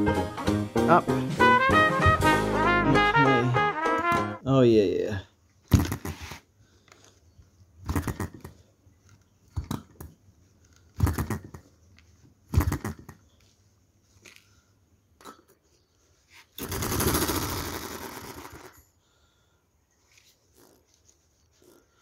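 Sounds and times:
small engine firing with sharp pops: 0:05.7 - 0:06.2, 0:07.8 - 0:08.6, 0:11.0 - 0:11.6, 0:12.5 - 0:13.2, 0:16.6 - 0:18.8.

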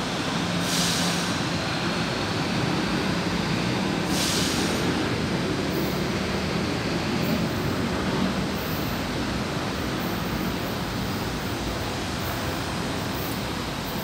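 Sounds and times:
short air hisses: 0:00.6 - 0:01.4, 0:04.0 - 0:05.0.

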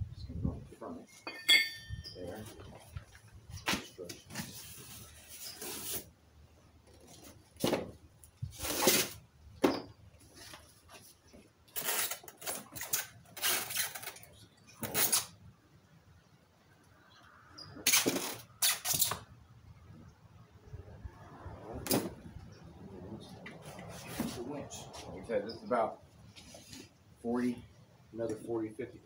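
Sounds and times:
cardboard and foam rustling: 0:02.4 - 0:06.1.

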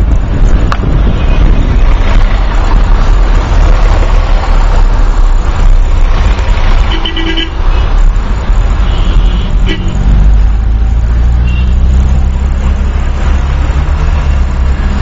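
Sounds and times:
car engine and road rumble: 0:00.0 - 0:15.0
car horn honking: 0:06.9 - 0:07.8, 0:08.8 - 0:10.0, 0:11.4 - 0:11.9.

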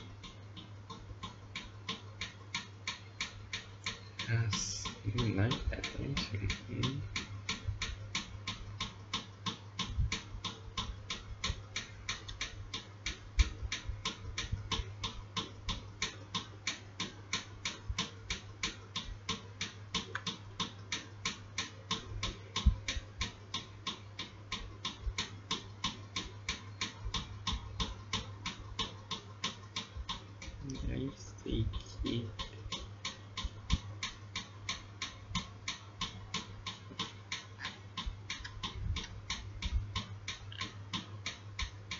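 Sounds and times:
fast even ticking: 0:00.0 - 0:41.9
low steady hum: 0:00.0 - 0:41.9.

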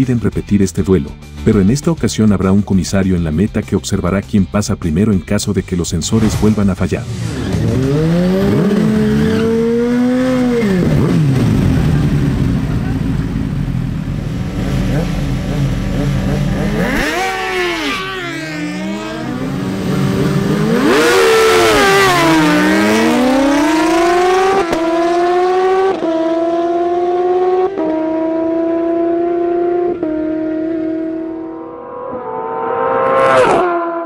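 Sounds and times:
motorcycles accelerating hard: 0:07.0 - 0:34.0
motorcycles idling: 0:07.1 - 0:21.0.

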